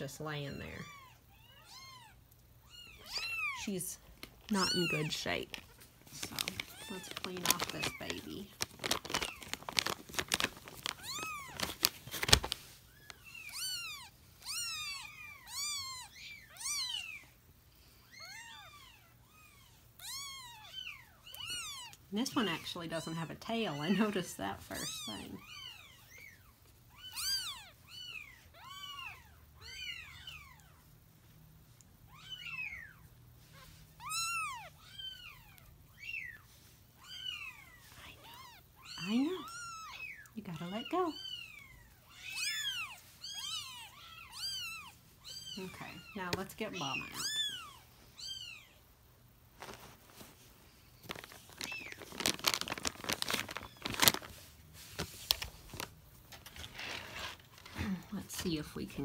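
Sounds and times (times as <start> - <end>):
bath wipe crinkling and rustling: 4.0 - 14.6, 49.5 - 59.0.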